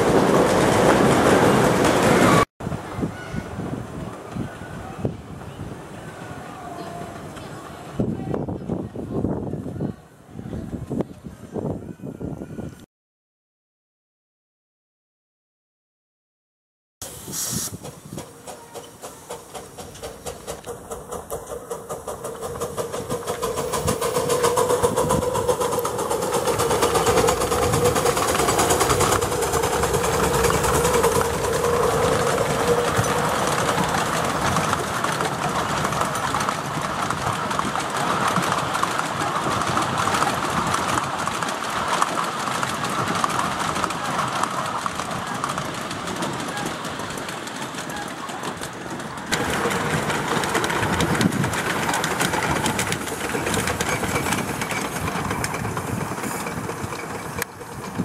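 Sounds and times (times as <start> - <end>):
wheels clattering on rails: 0.0 - 9.4, 17.0 - 58.0
steam locomotive chuffing: 17.0 - 58.0.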